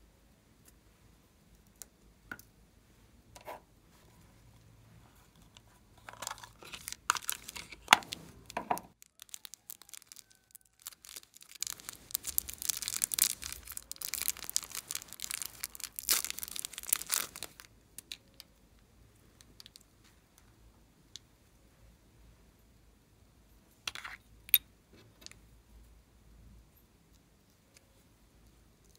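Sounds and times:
plastic wrapping crinkling and tearing: 6.0s - 18.2s.

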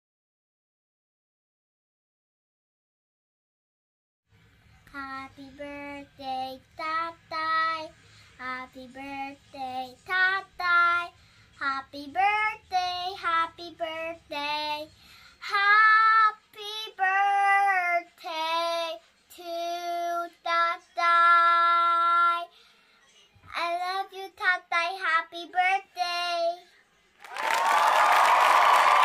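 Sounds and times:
girl singing unaccompanied: 4.8s - 22.6s, 23.4s - 26.7s.

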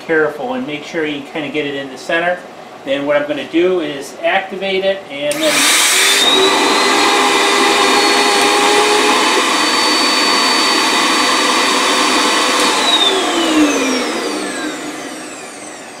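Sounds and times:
vacuum motor whine: 5.3s - 16.0s.

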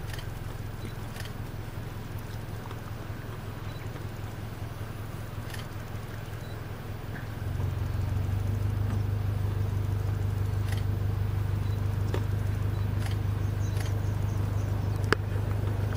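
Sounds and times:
faint clicks: 0.0s - 1.4s, 5.4s - 7.3s, 12.0s - 14.2s, 14.9s - 15.9s
vehicle engine idling: 0.0s - 15.9s.

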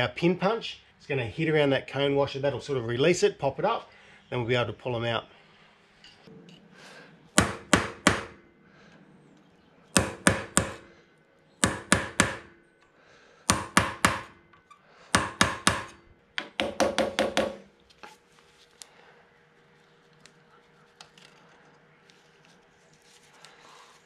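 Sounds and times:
hammer tapping metal punch: 10.0s - 10.9s, 11.6s - 12.5s, 13.5s - 14.6s, 15.2s - 17.7s.

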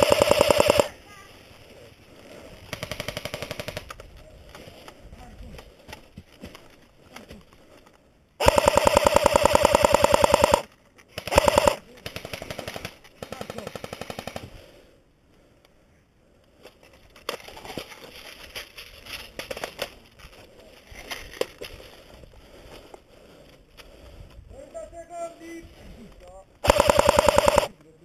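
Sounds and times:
airsoft rifle firing bursts: 0.0s - 0.9s, 2.7s - 3.9s, 8.4s - 14.4s, 26.6s - 27.8s.

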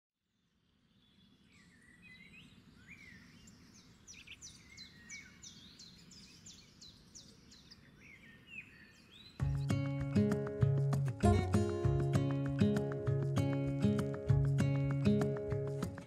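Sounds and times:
high downward-sweeping bird chirps: 0.8s - 9.8s.

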